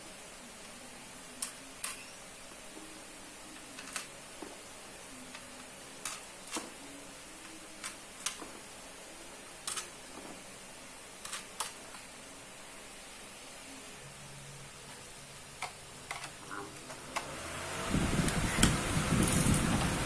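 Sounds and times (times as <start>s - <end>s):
faint steady hiss: 0.0s - 20.0s.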